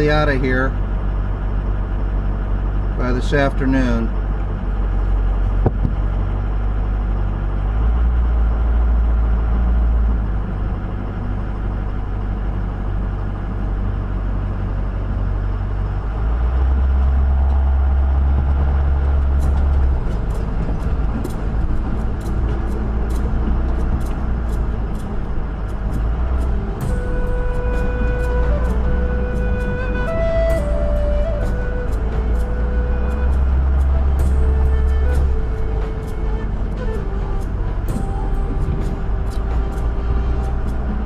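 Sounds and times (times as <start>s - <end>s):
truck engine rumble: 0.0s - 41.0s
sharp clicks and rattles: 18.4s - 27.0s.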